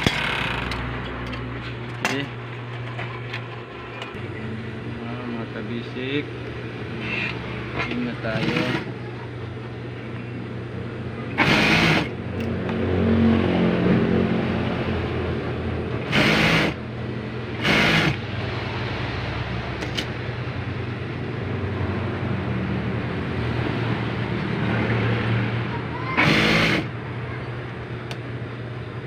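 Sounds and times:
steady low hum: 0:00.0 - 0:29.0
sewing machine stitching: 0:08.3 - 0:08.9, 0:11.4 - 0:12.1, 0:16.0 - 0:16.8, 0:17.6 - 0:18.2, 0:26.2 - 0:26.9.

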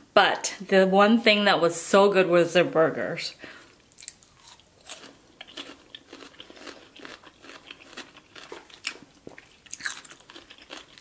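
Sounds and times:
chewing noodles with mouth clicks: 0:03.9 - 0:11.0.

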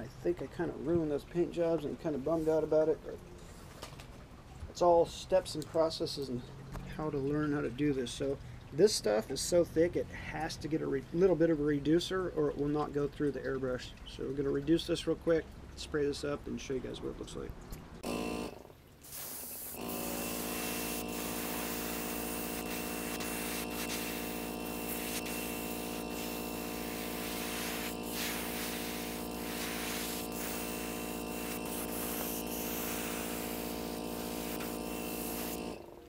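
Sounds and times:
airbrush hissing: 0:18.0 - 0:35.9
air compressor humming: 0:18.0 - 0:36.0.

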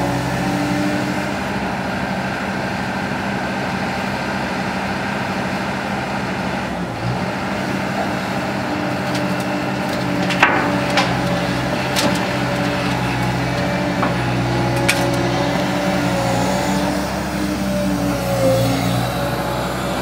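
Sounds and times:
excavator diesel engine running: 0:00.0 - 0:20.0
dirt dumping into steel truck: 0:07.7 - 0:17.4
sharp metal knocks and clanks: 0:08.9 - 0:15.6.

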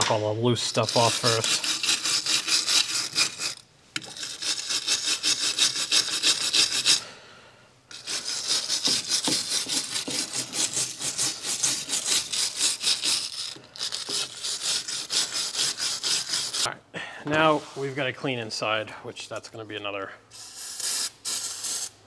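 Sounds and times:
hand scrubbing rust off metal: 0:00.0 - 0:07.0, 0:07.9 - 0:16.7.

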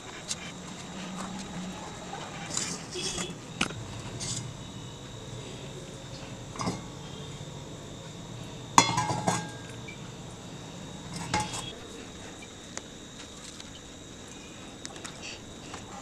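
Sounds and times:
metal kitchen vessels clinking: 0:06.6 - 0:07.0, 0:08.8 - 0:09.9, 0:11.1 - 0:11.7.

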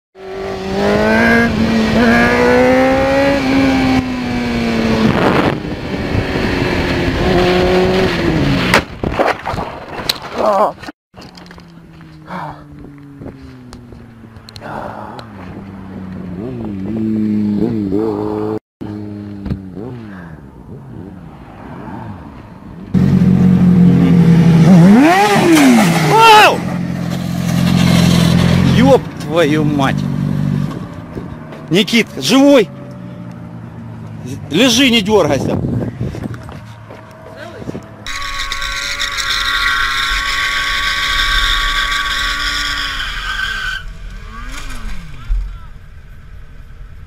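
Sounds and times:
motorcycle engine revving: 0:00.2 - 0:08.8, 0:11.2 - 0:21.6, 0:22.9 - 0:43.2
motorcycle engine pulling hard: 0:00.2 - 0:10.5, 0:34.2 - 0:45.6
wind rush: 0:01.5 - 0:10.2, 0:35.1 - 0:36.9.

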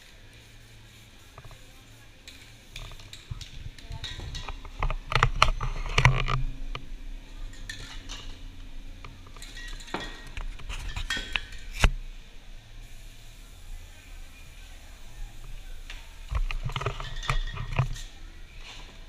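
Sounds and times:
spray cans clinking together: 0:02.2 - 0:05.1, 0:07.4 - 0:08.5, 0:09.1 - 0:11.7, 0:15.9 - 0:18.1.

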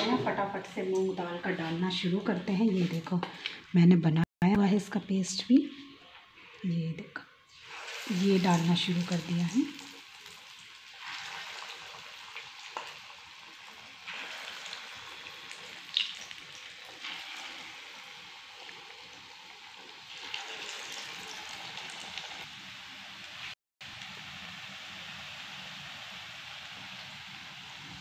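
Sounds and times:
batter sizzling in hot oil: 0:07.5 - 0:28.0.

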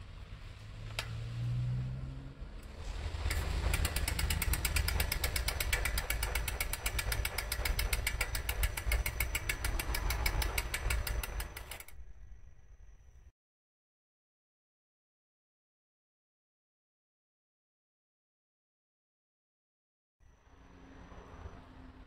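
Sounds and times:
bicycle wheel ticking: 0:02.6 - 0:12.5.

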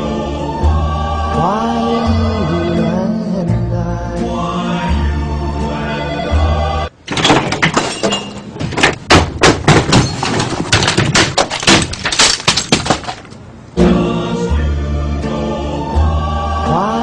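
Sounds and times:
glass breaking: 0:07.1 - 0:13.4.

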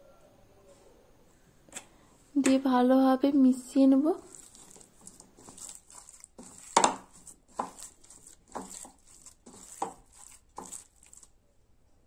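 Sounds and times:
hand squelching meat paste: 0:04.2 - 0:11.4.

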